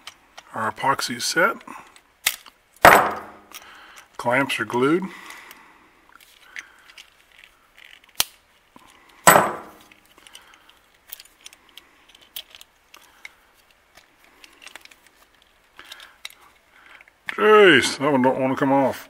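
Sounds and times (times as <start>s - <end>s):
loud clunk: 2.8s - 3.4s, 9.3s - 9.8s
metal clamps clicking and scraping: 6.2s - 17.4s.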